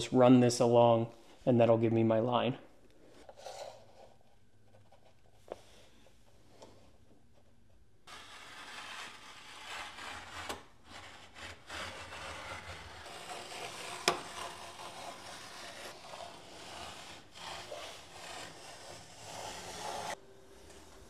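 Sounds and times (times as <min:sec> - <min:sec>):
blade scraping tape on floor: 0:08.1 - 0:21.0.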